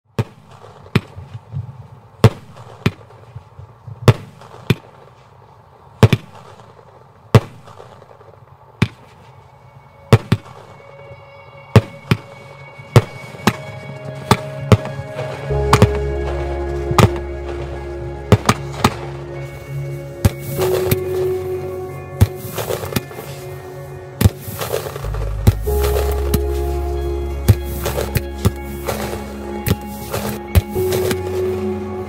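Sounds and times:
music: 0:09.3 - 0:32.0.

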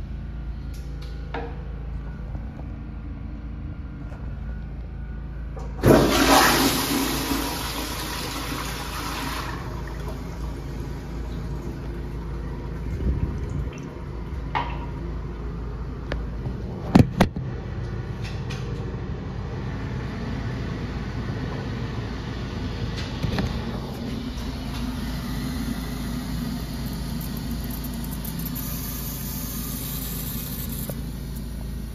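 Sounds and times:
toilet flushing whoosh: 0:05.8 - 0:14.2.

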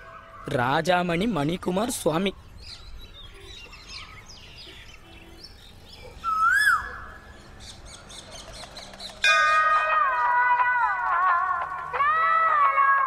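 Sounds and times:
small birds chirping: 0:00.0 - 0:09.3.

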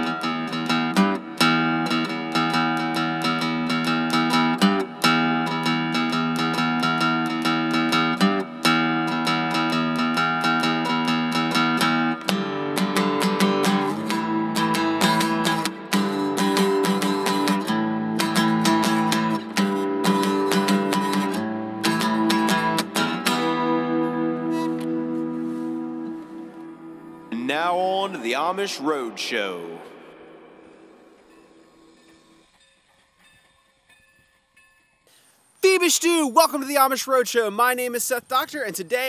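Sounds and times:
strummed acoustic guitar: 0:00.0 - 0:30.0.

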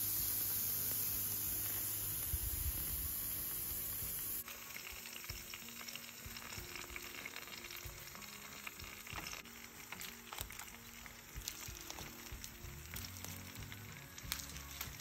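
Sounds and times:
vegetables sizzling on a grill: 0:00.0 - 0:15.0.

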